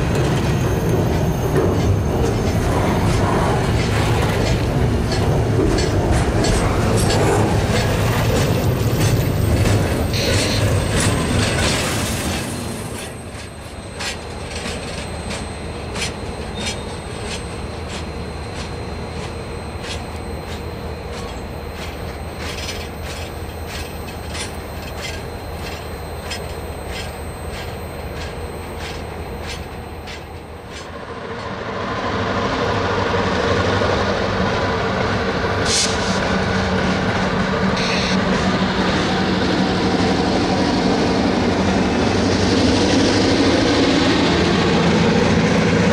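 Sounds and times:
train wheels clicking over rail joints: 0.0 - 31.6
diesel locomotive engine running: 0.0 - 45.9.

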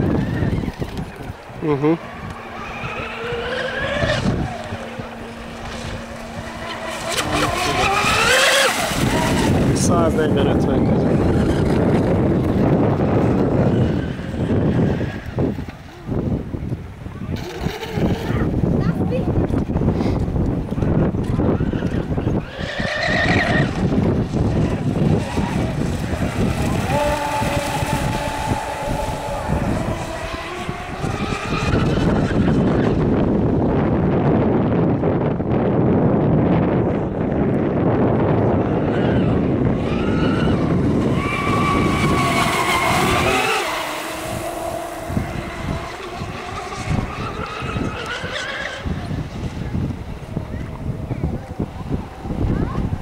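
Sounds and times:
water rushing and spray: 0.0 - 13.6, 23.6 - 32.7, 39.8 - 53.0
speedboat motor whine: 0.0 - 53.0
low rushing noise: 23.8 - 34.2, 40.5 - 47.9.

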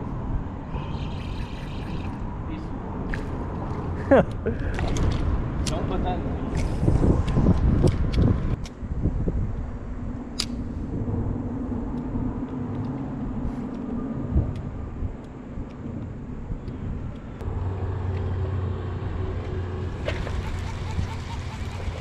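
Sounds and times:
sharp click: 10.4 - 10.6
low engine rumble: 17.1 - 22.0.

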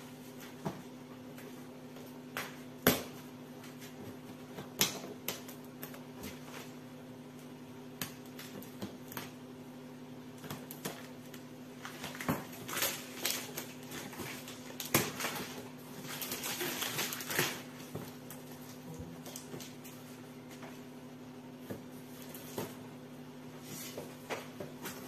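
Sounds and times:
cardboard and plastic rustling: 10.4 - 25.0.

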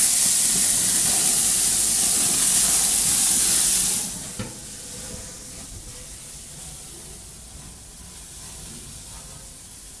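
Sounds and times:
food sizzling on grill: 0.0 - 10.0.

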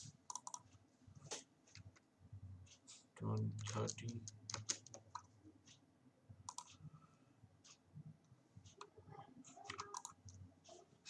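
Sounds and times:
computer mouse clicks: 0.3 - 0.6, 3.4 - 5.3, 6.5 - 6.8, 9.5 - 10.4
keyboard clicks: 0.3 - 0.6, 3.3 - 5.3, 6.5 - 6.8, 9.5 - 10.4.

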